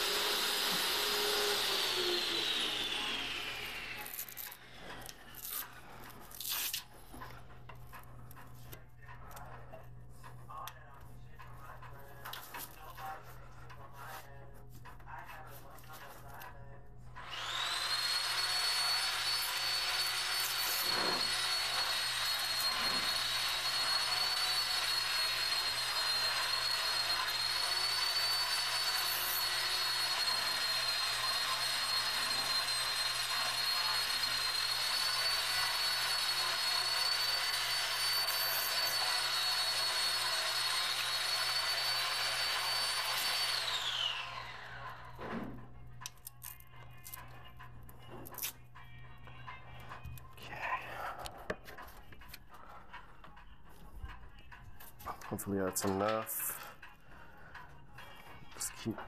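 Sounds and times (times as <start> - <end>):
electric motor whine: 0.0 - 6.0, 17.2 - 45.4.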